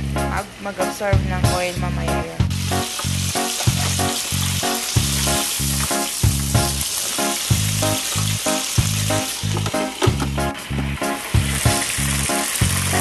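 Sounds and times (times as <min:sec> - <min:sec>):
chicken sizzling in deep fryer oil: 0:00.0 - 0:13.0
music with a steady beat: 0:01.2 - 0:13.0.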